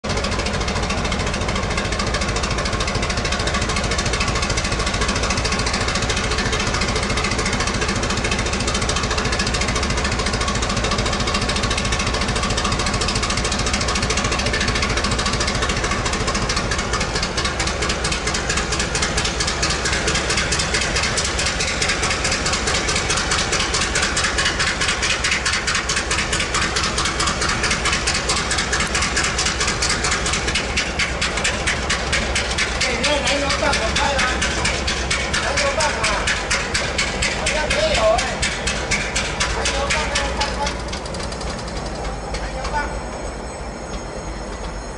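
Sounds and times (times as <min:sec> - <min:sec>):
locomotive diesel engine idling: 0:00.0 - 0:44.9.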